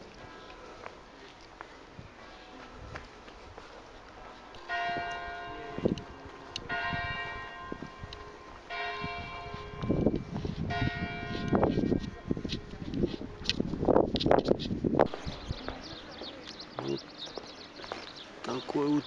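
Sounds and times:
church bell tolling: 0:04.5 - 0:12.4.

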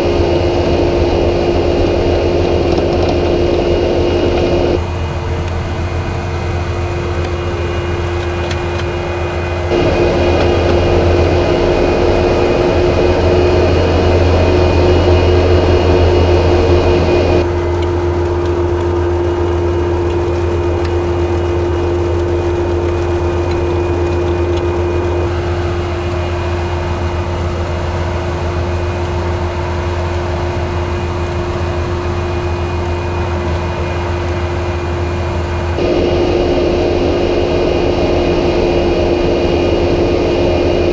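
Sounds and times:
diesel engine running under load: 0:00.0 - 0:40.9.

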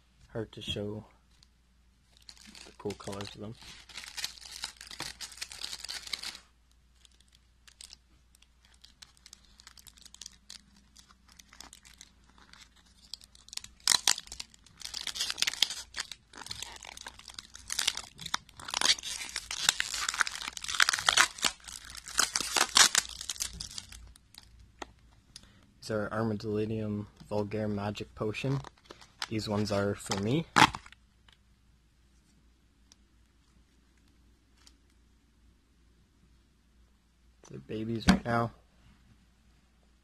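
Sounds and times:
plastic wrap crinkling and tearing: 0:02.1 - 0:24.6, 0:28.5 - 0:31.0.

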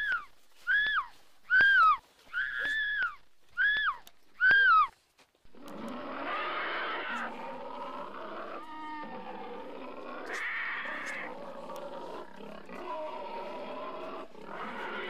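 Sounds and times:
monster-like growling and roaring: 0:05.5 - 0:15.0
rattling growl: 0:05.5 - 0:15.0.

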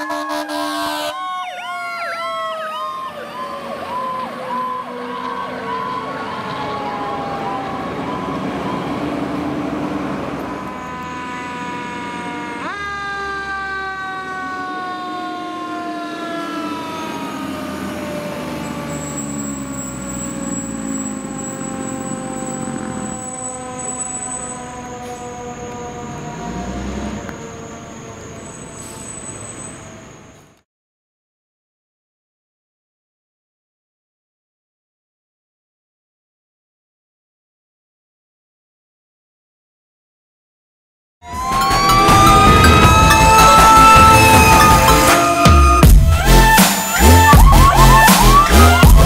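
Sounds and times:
fire truck sirens yelping and wailing: 0:00.0 - 0:30.6, 0:41.2 - 0:49.0
truck engines running low: 0:01.7 - 0:30.6, 0:41.3 - 0:49.0.

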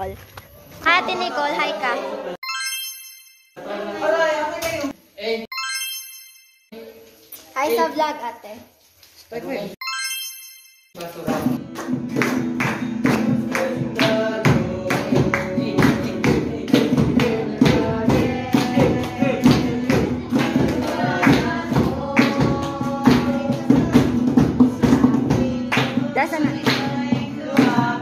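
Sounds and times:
group of voices singing: 0:03.6 - 0:05.0, 0:13.0 - 0:28.0
sharp percussive beat: 0:10.9 - 0:28.0
acoustic guitar strumming: 0:11.3 - 0:28.0.

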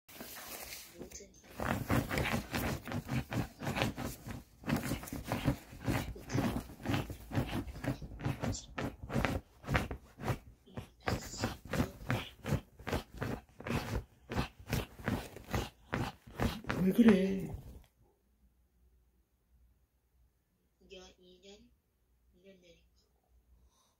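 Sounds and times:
scratchy rustles of bedding fabric: 0:00.1 - 0:17.8.

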